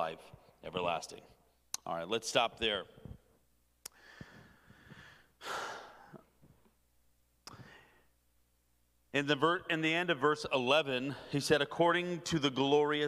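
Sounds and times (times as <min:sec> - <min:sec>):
man breathing into microphone: 0:03.9 - 0:06.3, 0:07.5 - 0:08.1.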